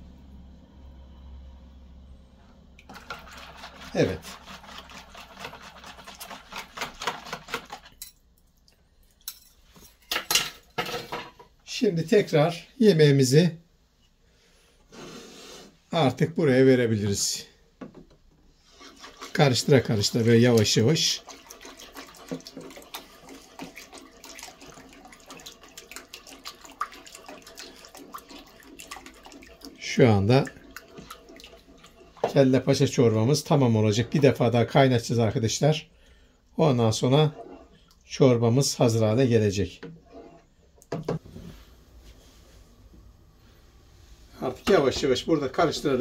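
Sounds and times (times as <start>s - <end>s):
whisk beating eggs in a bowl: 2.8s - 8.0s, 18.7s - 35.5s, 36.6s - 38.0s
liquid pouring into a pot: 2.8s - 9.3s, 18.8s - 35.4s
soft sloshing: 18.4s - 46.0s.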